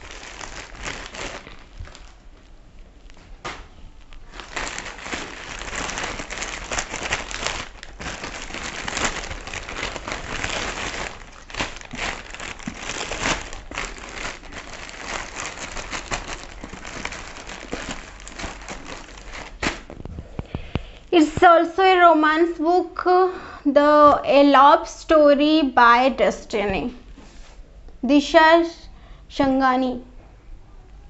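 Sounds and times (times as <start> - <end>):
plastic packaging crinkling: 0.0 - 21.5.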